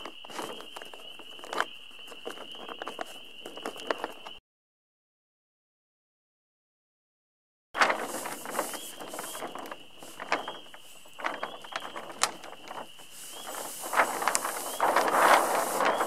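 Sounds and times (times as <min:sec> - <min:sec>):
sail crackling and rustling: 0:00.0 - 0:04.4, 0:07.8 - 0:16.0.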